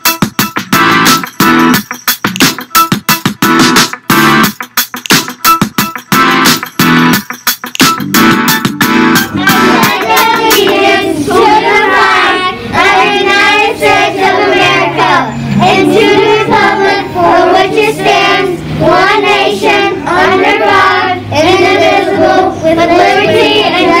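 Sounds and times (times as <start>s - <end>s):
children reciting in unison: 9.4s - 24.0s.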